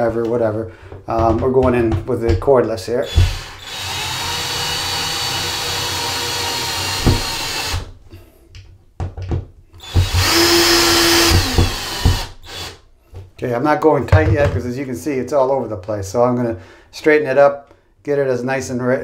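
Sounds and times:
cordless screwdriver motor running: 3.1s - 7.7s, 9.8s - 12.8s.

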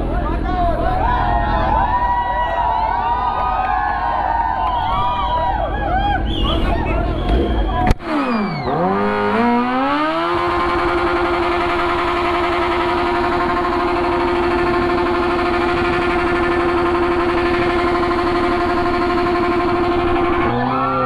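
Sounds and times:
motorcycle engine at high revs: 6.2s - 21.0s.

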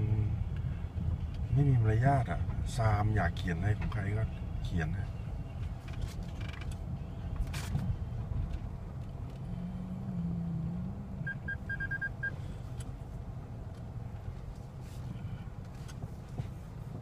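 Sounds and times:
car engine rumble: 0.0s - 17.0s
road noise: 0.0s - 17.0s
short high beeps: 11.2s - 12.4s.

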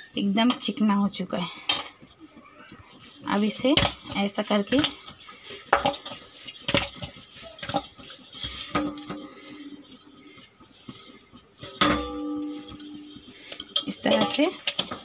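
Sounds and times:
dough knocking in metal bowl: 3.0s - 15.0s
metal bowl ringing: 6.8s - 14.7s.

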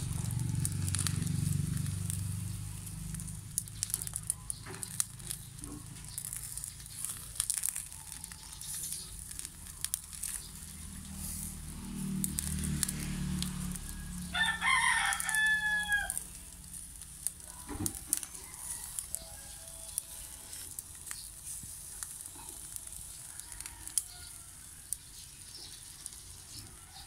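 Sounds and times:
low rumble: 0.0s - 7.3s
charcoal fire crackling: 0.0s - 27.0s
fish sizzling with high hiss: 0.0s - 27.0s.

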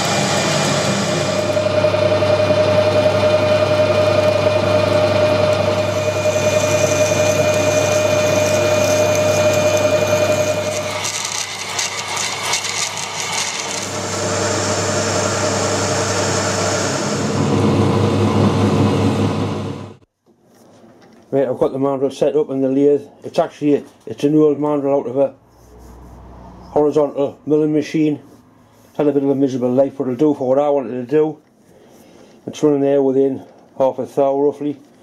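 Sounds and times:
lathe cutting tone: 0.0s - 20.0s
metal lathe hum: 0.0s - 20.0s.

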